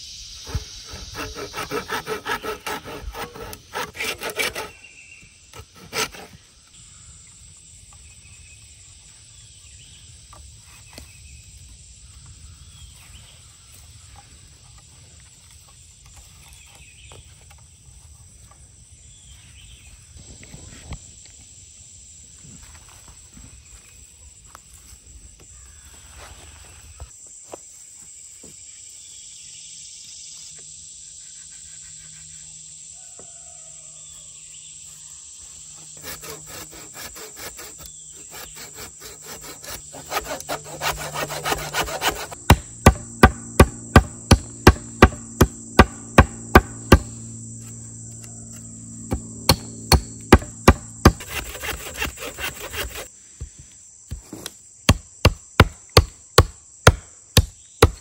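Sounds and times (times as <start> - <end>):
hand saw rasping through wood: 0.5 - 4.8, 5.6 - 6.4, 35.9 - 47.8, 49.1 - 53.1
hatchet striking wood: 38.5 - 47.4, 49.1 - 53.0, 54.9 - 58.0.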